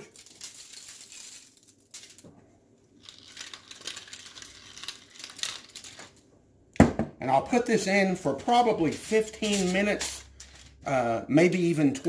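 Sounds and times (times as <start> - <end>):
pepper mill grinding: 0.0 - 2.2, 3.0 - 6.1, 8.7 - 10.8.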